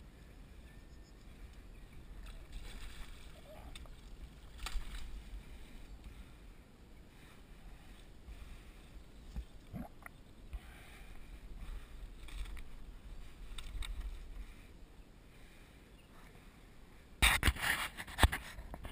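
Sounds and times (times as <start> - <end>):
rustling in reeds and grass: 1.2 - 18.9
light water sounds: 1.4 - 6.3.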